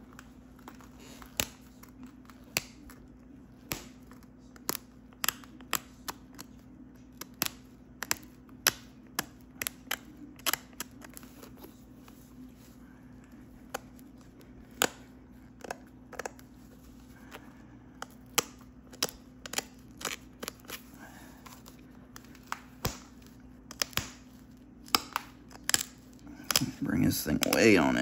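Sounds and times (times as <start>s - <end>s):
stone knapping clicks: 22.2s - 24.2s.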